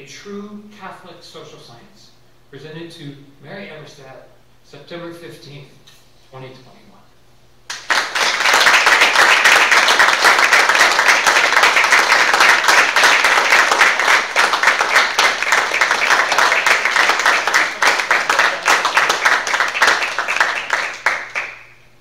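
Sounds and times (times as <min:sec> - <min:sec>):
audience applauding: 0:07.7 - 0:21.8.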